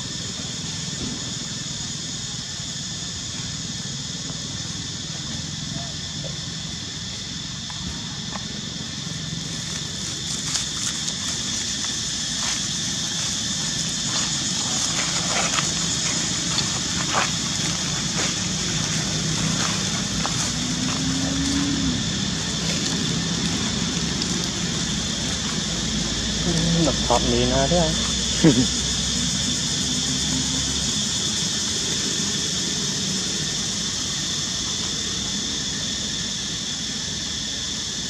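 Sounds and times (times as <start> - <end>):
outdoor background hum: 0.0 - 38.0
dry leaves crackling and rustling: 9.4 - 26.9.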